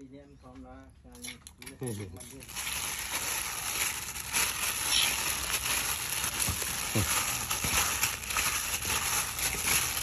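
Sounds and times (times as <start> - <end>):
plastic bag crinkling: 2.2 - 10.0.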